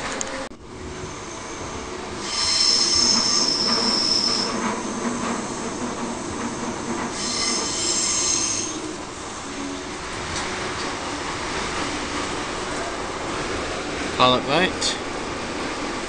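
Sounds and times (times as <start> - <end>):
train wheels squealing on rails: 0.3 - 11.0.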